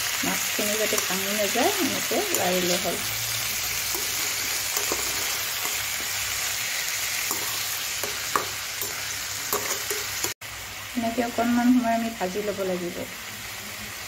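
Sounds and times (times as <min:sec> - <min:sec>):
food sizzling in oil: 0:00.0 - 0:14.0
metal spatula scraping pan: 0:00.8 - 0:06.3, 0:07.2 - 0:10.4.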